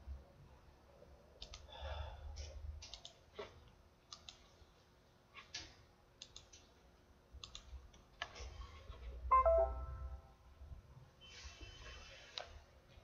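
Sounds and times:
computer mouse clicks: 1.4 - 1.7, 2.8 - 4.5, 5.5 - 6.7, 7.4 - 8.4
notification chime: 9.3 - 10.2.

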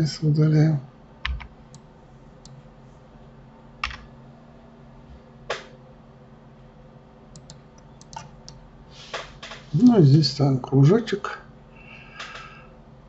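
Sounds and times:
faint steady hum: 0.0 - 13.0
keyboard and mouse clicks: 1.3 - 1.8, 3.8 - 4.1, 7.4 - 8.6.

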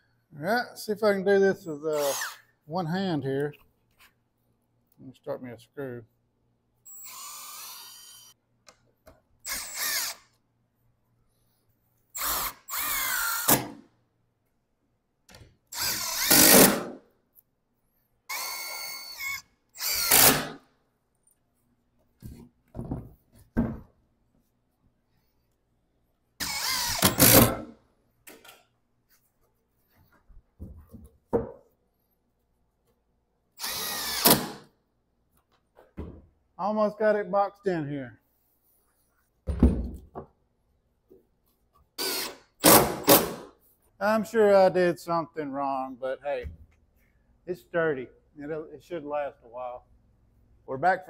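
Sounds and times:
cordless drill driving screws: 1.9 - 2.4, 6.9 - 8.4, 9.4 - 10.3, 12.2 - 13.8, 15.7 - 16.9, 18.3 - 20.6, 26.4 - 27.7, 33.6 - 34.6, 42.0 - 43.4.

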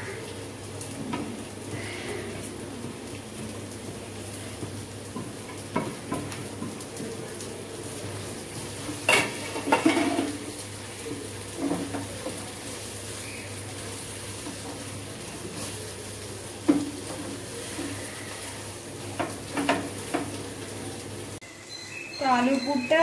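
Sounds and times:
low sizzle of frying: 0.0 - 23.0
wooden spatula scraping a pan: 16.6 - 18.6.

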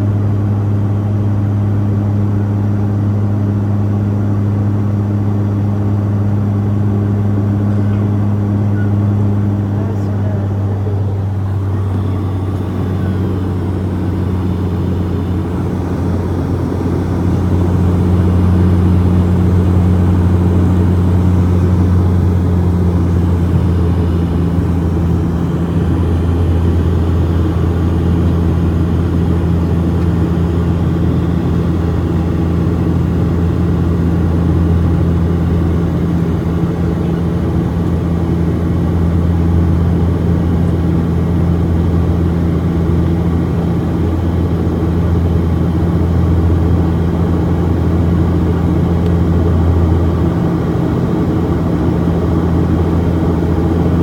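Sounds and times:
airliner engines and propellers humming: 0.0 - 54.0
higher hum: 7.6 - 35.2.

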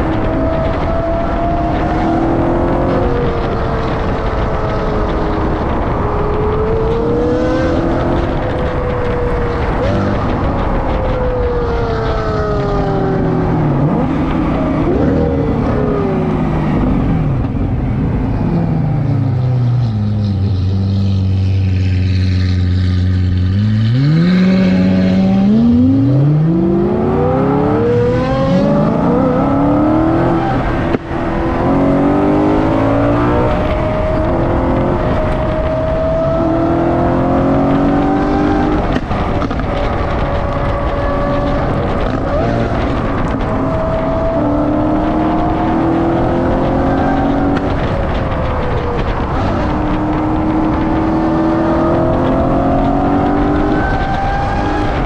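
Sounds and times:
sports car engine revving: 11.3 - 55.0.

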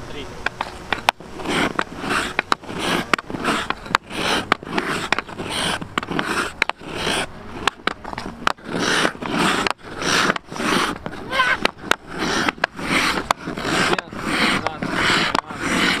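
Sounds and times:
hockey stick scraping ice: 0.4 - 16.0
puck clicking on stick blade: 0.4 - 16.0.

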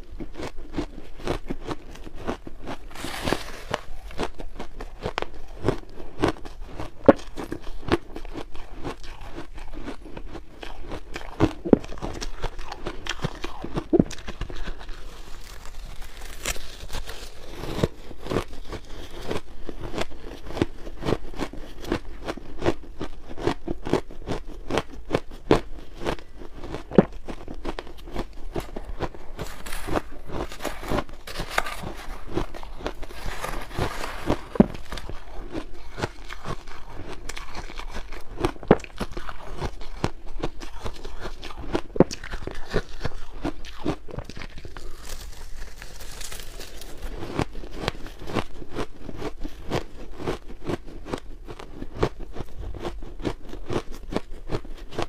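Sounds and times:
person crunching shaved ice: 0.0 - 55.0.

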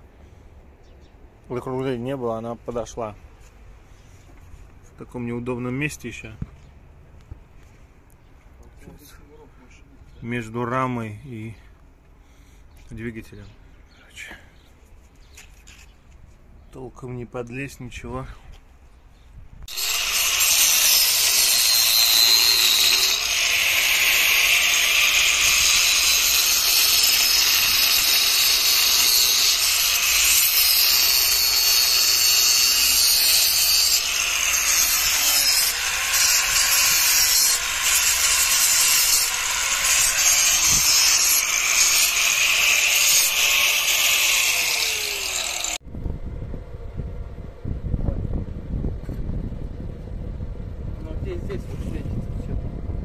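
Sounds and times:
power tool grinding metal: 19.7 - 45.8.

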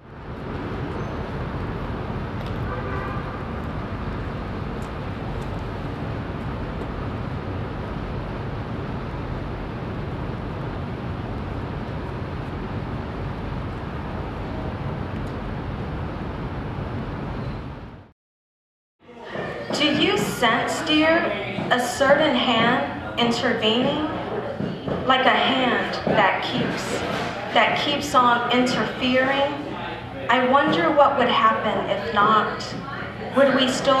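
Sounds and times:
low rumble of traffic: 0.0 - 18.1.

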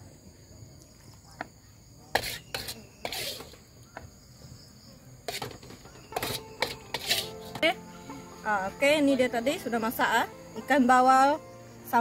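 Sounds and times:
insects chirring: 0.0 - 12.0
spatula clinking and scraping: 2.2 - 3.6, 5.3 - 7.8.

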